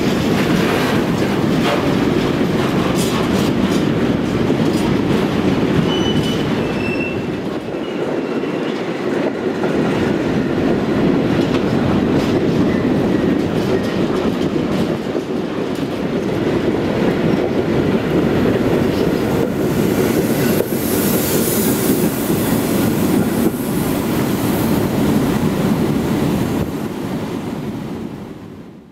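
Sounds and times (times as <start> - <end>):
train wheels rumbling on rails: 0.0 - 28.9
faint wheel squeal: 5.9 - 7.2.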